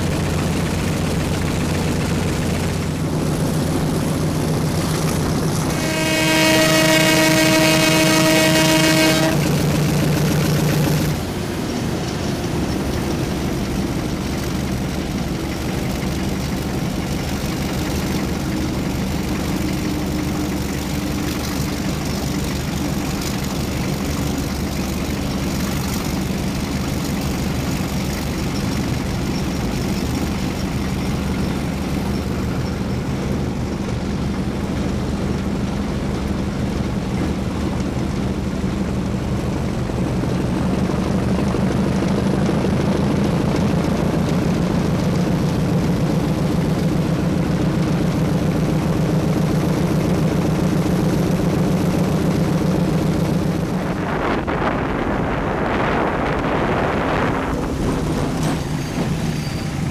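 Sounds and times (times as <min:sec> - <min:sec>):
locomotive running noise: 0:00.0 - 0:59.9
locomotive horn blast: 0:05.7 - 0:09.7.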